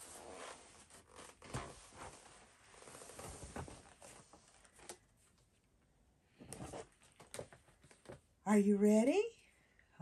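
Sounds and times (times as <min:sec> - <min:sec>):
soft rustling: 0:00.0 - 0:05.3.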